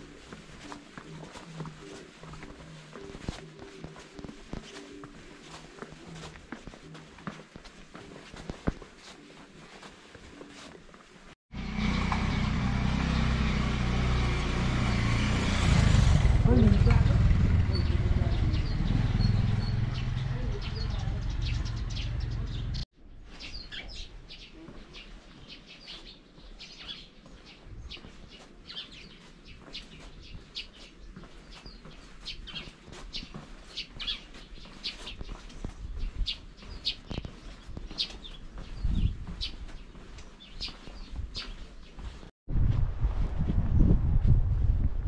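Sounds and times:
small birds chirping: 16.4s - 42.3s.

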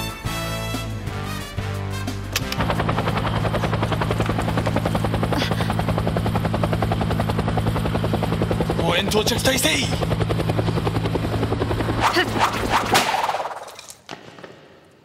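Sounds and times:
music: 0.0s - 4.4s
helicopter rotor chopping: 2.4s - 13.7s.

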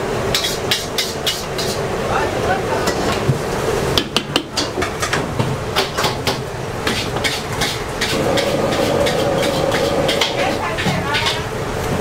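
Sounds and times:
metal ladle clanking and scraping wok: 0.3s - 1.8s, 6.8s - 11.5s.

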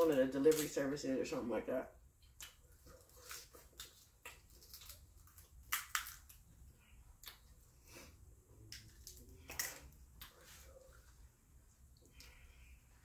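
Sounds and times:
shell cracks: 0.5s - 0.7s, 3.7s - 6.4s
seafood shells being peeled: 2.2s - 7.6s, 8.6s - 10.4s.

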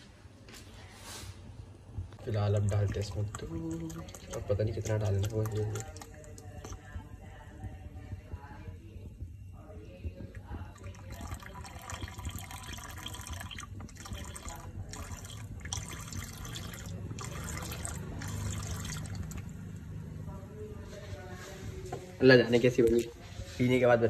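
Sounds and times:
milk pouring into boiling tea: 2.1s - 8.5s, 10.0s - 20.0s.

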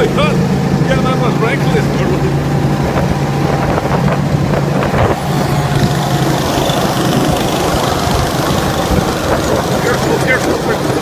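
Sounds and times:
go-kart engines running: 0.0s - 11.0s
wind rumbling on microphone: 0.0s - 11.0s
loud rushing noise: 2.2s - 11.0s.

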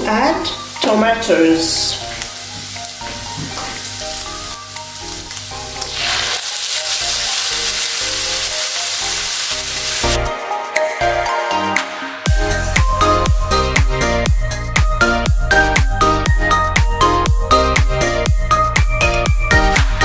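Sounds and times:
meat sizzling in a frying pan: 0.0s - 10.2s
background music: 0.0s - 20.0s.

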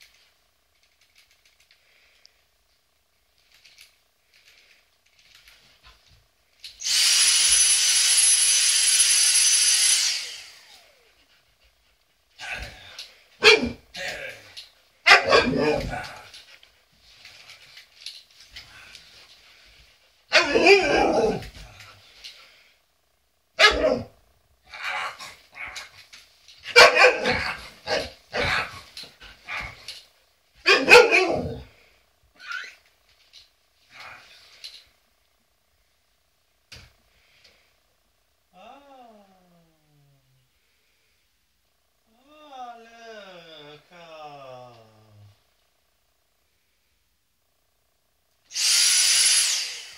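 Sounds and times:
vacuum cleaner whine and air rush: 6.8s - 11.1s, 48.5s - 49.9s
dogs barking: 13.4s - 13.8s, 15.0s - 15.8s, 26.7s - 28.7s, 30.6s - 31.6s.

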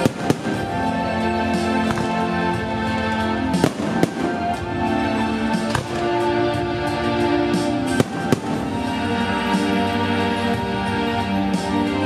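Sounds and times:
firework shells bursting: 0.0s - 0.9s, 3.6s - 4.7s
music with held notes: 0.0s - 12.0s.

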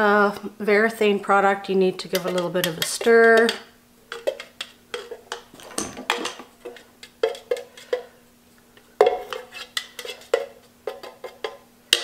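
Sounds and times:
stirrer scraping metal can: 2.0s - 8.1s, 9.0s - 11.6s.

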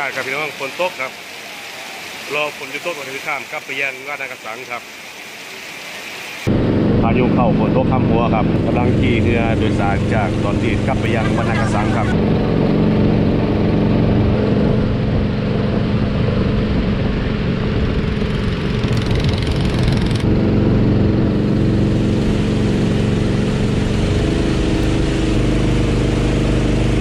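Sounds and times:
rain and water hiss: 0.0s - 27.0s
boat engine running: 6.5s - 27.0s.

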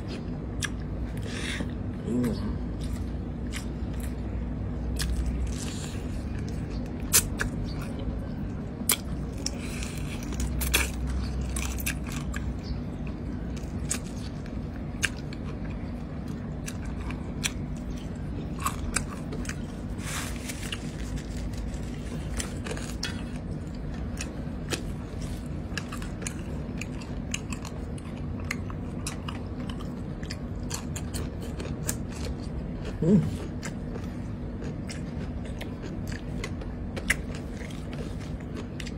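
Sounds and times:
person chewing with mouth clicks: 0.0s - 4.2s, 13.4s - 38.9s
steady low hum: 0.0s - 38.9s.

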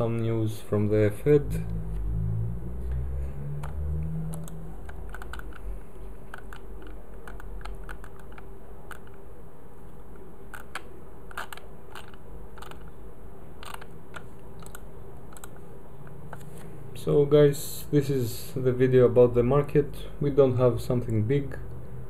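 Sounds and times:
steady low hum: 0.0s - 22.0s
computer mouse clicks: 3.6s - 9.2s, 10.5s - 12.9s, 13.6s - 15.6s.

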